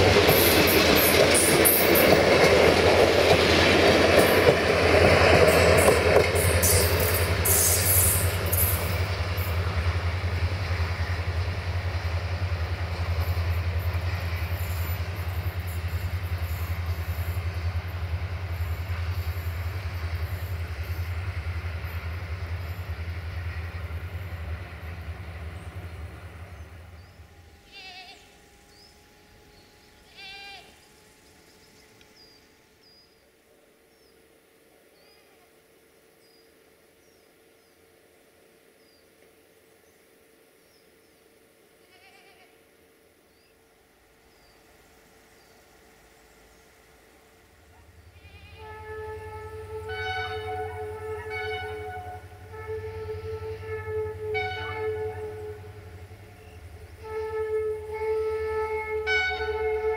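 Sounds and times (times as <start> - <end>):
passenger train rumble: 0.0 - 59.9
wavering bleats: 41.8 - 42.6.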